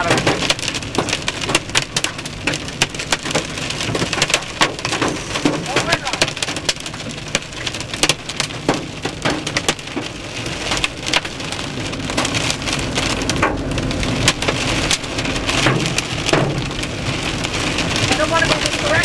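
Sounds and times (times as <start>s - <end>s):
heavy rain on car windshield: 0.0s - 19.0s.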